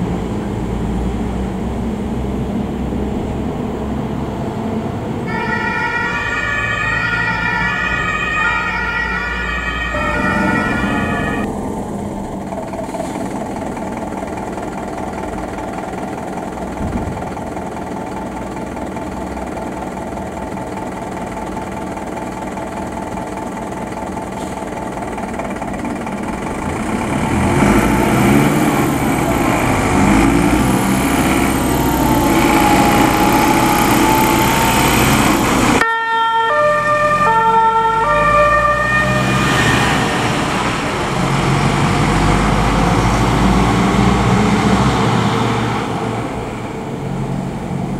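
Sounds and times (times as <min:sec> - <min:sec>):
fire engine engines running: 0:00.0 - 0:47.9
two-tone emergency siren: 0:05.2 - 0:13.2, 0:27.6 - 0:44.5.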